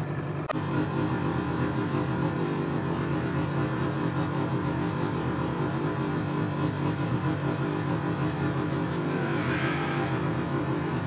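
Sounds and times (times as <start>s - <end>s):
snowmobile engine running: 0.0s - 11.0s.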